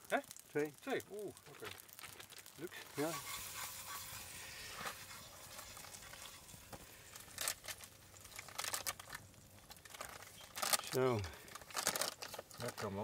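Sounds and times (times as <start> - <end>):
low steady hiss: 0.0 - 13.0
frying pan and spatula scraping: 2.7 - 9.0.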